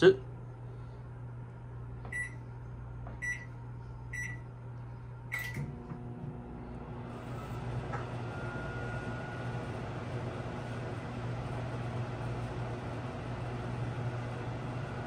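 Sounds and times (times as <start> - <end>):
microwave oven humming: 0.0 - 15.0
microwave keypad beeps: 2.1 - 2.4, 3.2 - 3.5, 4.1 - 4.4.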